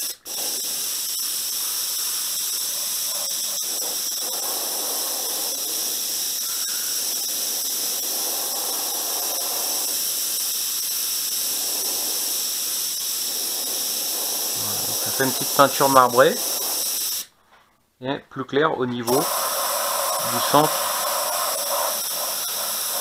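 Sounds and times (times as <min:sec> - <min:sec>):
airbrush spraying: 0:00.0 - 0:17.3, 0:19.1 - 0:23.0.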